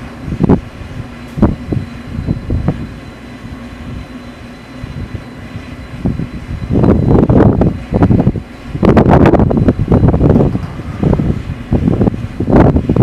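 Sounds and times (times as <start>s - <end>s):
machinery humming: 0.0s - 13.0s
wind gusting on microphone: 0.0s - 13.0s
short low rumbles: 6.0s - 13.0s.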